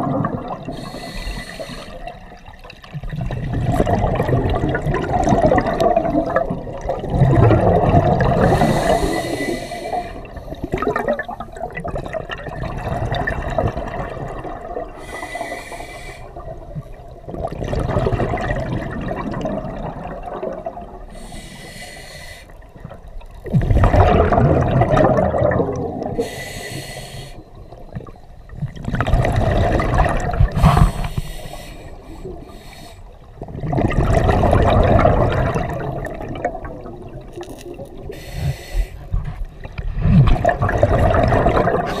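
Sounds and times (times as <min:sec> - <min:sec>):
exhaled air bubbling: 0:00.0 - 0:42.0
regulator inhalation hiss: 0:00.8 - 0:02.1, 0:08.5 - 0:10.2, 0:15.0 - 0:16.4, 0:21.1 - 0:22.6, 0:26.2 - 0:27.5, 0:30.6 - 0:33.2, 0:38.1 - 0:39.0.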